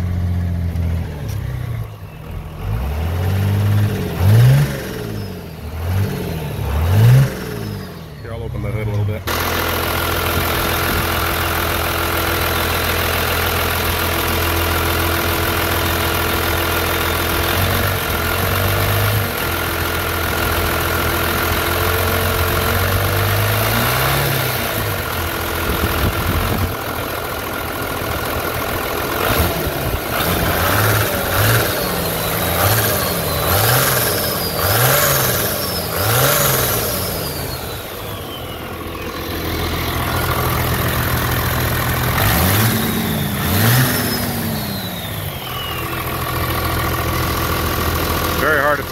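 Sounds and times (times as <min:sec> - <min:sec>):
diesel truck engine idling and revving: 0:00.0 - 0:48.9
high whistle: 0:44.0 - 0:46.2.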